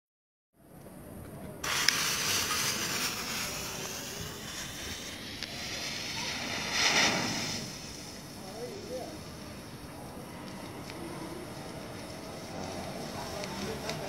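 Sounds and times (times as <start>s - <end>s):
lighter igniting fuse: 1.5s - 9.7s, 10.5s - 14.0s
smoke bomb hissing: 1.6s - 10.3s.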